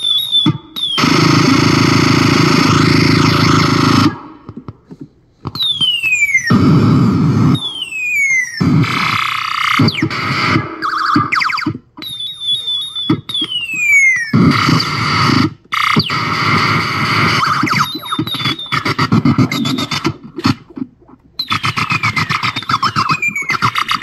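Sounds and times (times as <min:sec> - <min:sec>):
warbling electronic trills: 0:00.0 - 0:04.3, 0:05.6 - 0:24.0
electronic laser zaps: 0:00.0 - 0:04.4, 0:05.6 - 0:24.0
harsh noisy electronic blasts: 0:00.0 - 0:04.5, 0:05.6 - 0:24.0
fast stuttering electronic pulse: 0:01.0 - 0:04.3, 0:08.6 - 0:24.0.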